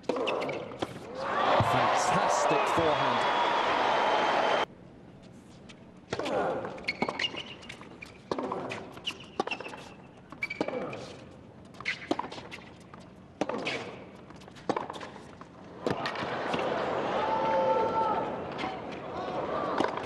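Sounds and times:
shoes squeaking on court: 0:06.7 - 0:15.6.

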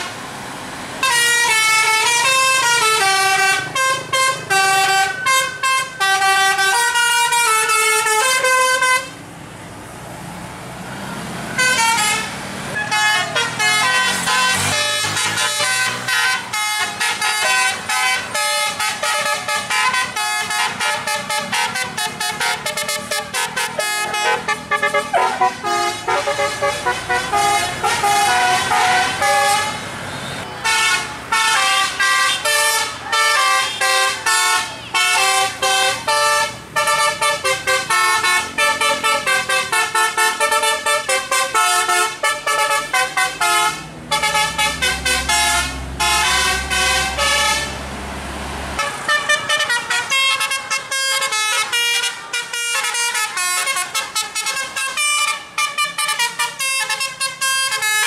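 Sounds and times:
bus engine drone: 0:00.0 - 0:58.0
musical bus horn melody: 0:01.0 - 0:09.2, 0:11.5 - 0:47.9, 0:48.8 - 0:58.0.

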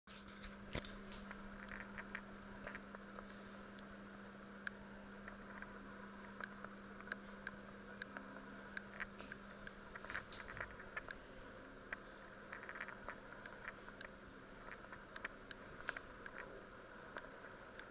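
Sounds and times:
steady low hum: 0:00.1 - 0:17.9
faint clicks and ticks: 0:00.4 - 0:17.9.

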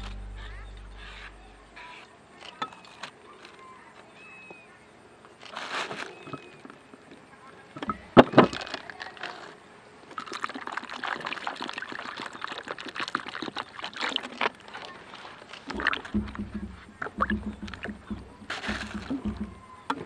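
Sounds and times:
light crackling and rustling: 0:05.2 - 0:10.2, 0:13.4 - 0:20.0
water sloshing in plastic basin: 0:07.8 - 0:20.0.

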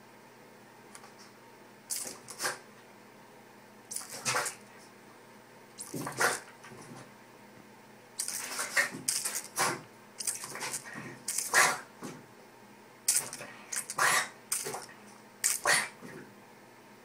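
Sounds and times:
spray bottle squirting: 0:01.9 - 0:02.3, 0:08.2 - 0:11.6, 0:13.1 - 0:15.7
dog snapping and biting: 0:01.9 - 0:02.6, 0:08.2 - 0:11.8, 0:13.1 - 0:15.9.

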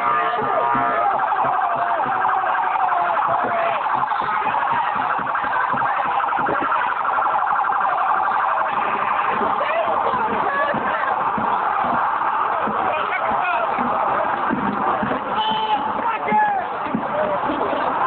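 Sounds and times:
police siren warbling: 0:00.0 - 0:16.0.

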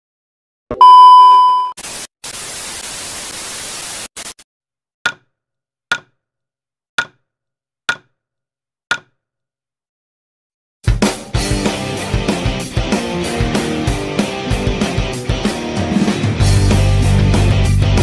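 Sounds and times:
loud electronic beep: 0:00.8 - 0:01.8
static hiss: 0:01.8 - 0:04.4.

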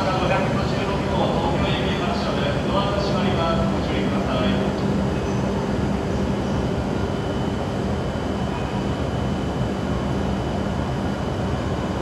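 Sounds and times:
low rumble and hum of station: 0:00.0 - 0:12.0.

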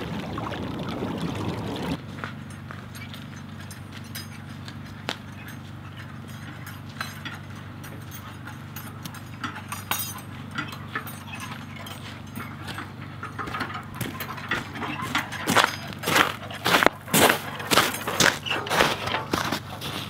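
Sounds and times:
metal buckets creaking and clinking: 0:00.0 - 0:20.0
footsteps on snow: 0:15.5 - 0:20.0.

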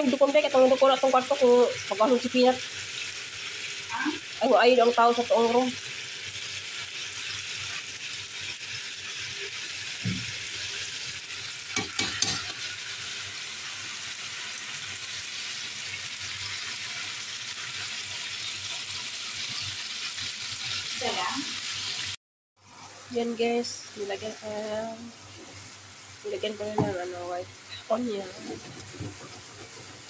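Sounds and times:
meat sizzling in a pan: 0:00.0 - 0:30.0
metal utensil knocking on pan: 0:11.7 - 0:12.6.

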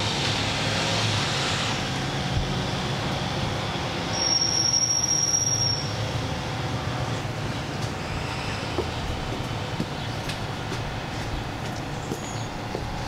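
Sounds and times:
steady rushing noise: 0:00.0 - 0:04.2, 0:05.9 - 0:13.0.

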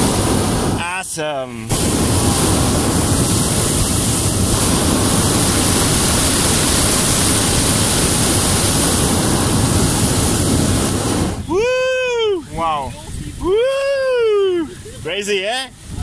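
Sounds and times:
propane burner blasting: 0:00.0 - 0:16.0.

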